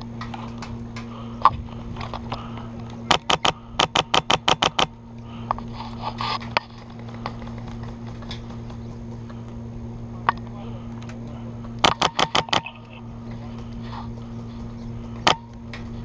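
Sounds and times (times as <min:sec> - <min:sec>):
airsoft rifle shots: 0:03.1 - 0:04.9, 0:11.8 - 0:12.7.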